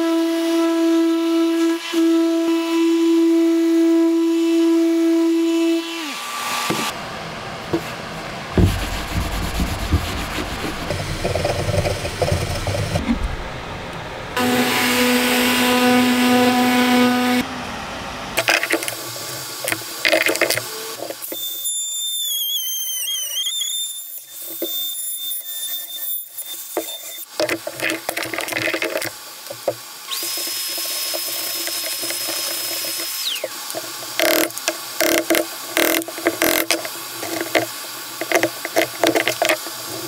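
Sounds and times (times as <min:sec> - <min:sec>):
knocks and clatter: 0:08.5 - 0:13.3
orbital sander humming: 0:08.6 - 0:13.4, 0:14.4 - 0:17.4, 0:29.5 - 0:40.0
router motor whine: 0:08.6 - 0:24.8, 0:29.6 - 0:40.0
power tool whine winding down: 0:30.1 - 0:40.0.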